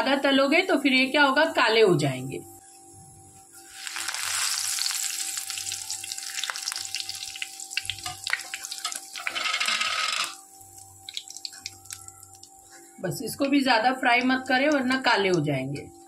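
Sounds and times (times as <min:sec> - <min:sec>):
leaves sizzling in hot oil: 0:03.6 - 0:12.6.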